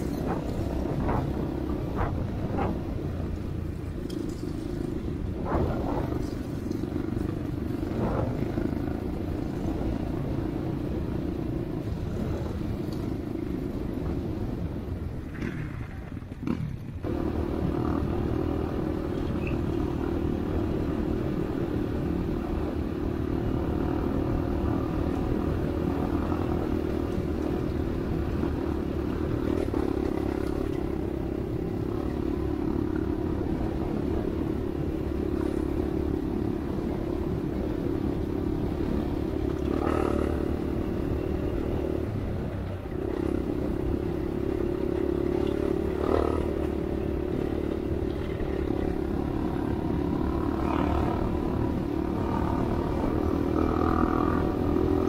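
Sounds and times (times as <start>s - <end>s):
dirt bike engine running: 0.0s - 11.1s
wind rumble on microphone: 0.0s - 55.0s.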